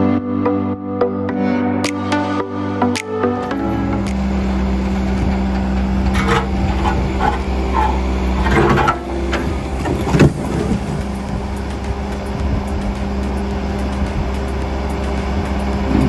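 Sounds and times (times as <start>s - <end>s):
diesel engine running: 3.4s - 16.0s.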